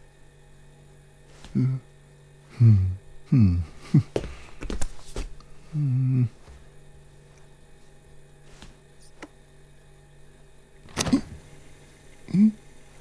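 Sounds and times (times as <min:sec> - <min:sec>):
cartoon man grunting and humming: 0:01.5 - 0:01.9, 0:02.5 - 0:04.1, 0:05.7 - 0:06.4, 0:12.3 - 0:12.6
fridge door clicks: 0:10.9 - 0:11.3.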